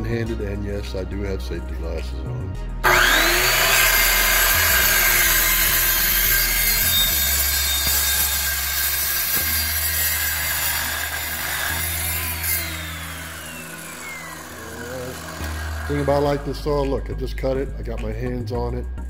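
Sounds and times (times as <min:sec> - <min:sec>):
saw motor whine: 0:02.8 - 0:16.6
saw cutting steel pipe: 0:02.8 - 0:16.9.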